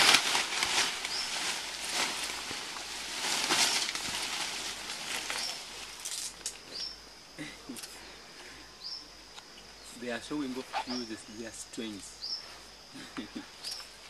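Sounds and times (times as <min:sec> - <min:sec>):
leaves rustling and swishing: 0:00.0 - 0:06.8.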